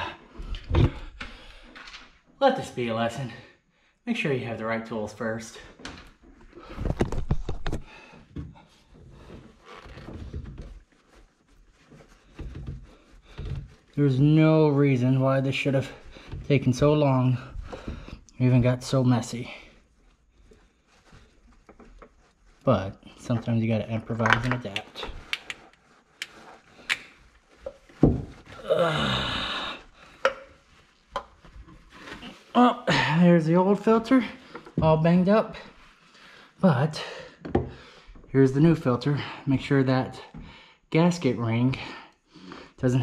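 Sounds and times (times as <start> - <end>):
cloth rag rubbing: 8.6 - 24.2, 24.8 - 36.8.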